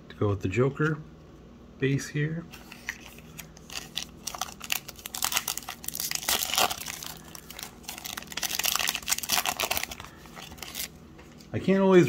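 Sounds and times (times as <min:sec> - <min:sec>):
foil wrapper crinkling and tearing: 0:02.6 - 0:11.5.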